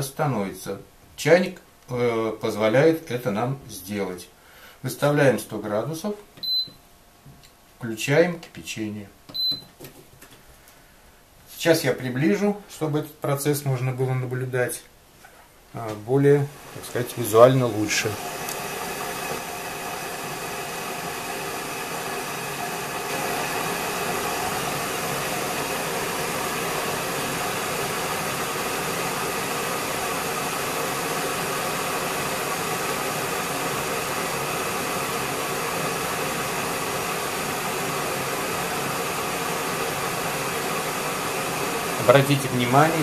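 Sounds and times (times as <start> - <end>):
electric kettle hissing: 16.0 - 43.0.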